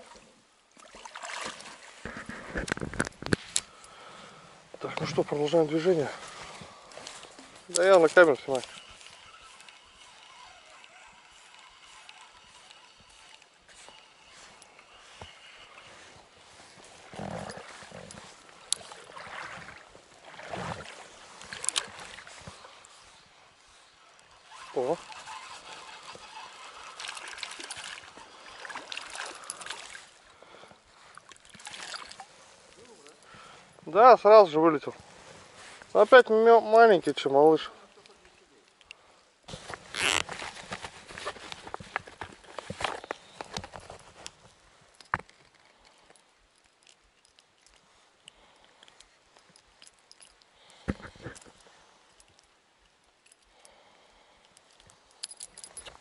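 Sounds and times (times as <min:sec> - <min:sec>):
water splashing: 0:00.0 - 0:02.0, 0:17.6 - 0:22.9, 0:24.2 - 0:30.2, 0:31.2 - 0:32.8
clicks and knocks of handling: 0:39.6 - 0:51.6.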